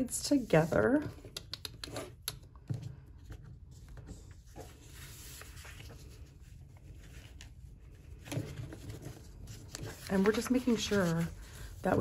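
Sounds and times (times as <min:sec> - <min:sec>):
paper and fabric rustling: 0:03.6 - 0:12.0.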